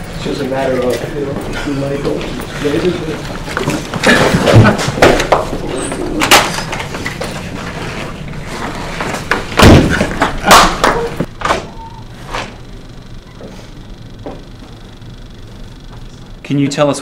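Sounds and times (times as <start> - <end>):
thuds and slaps of scuffle: 9.3 - 11.7.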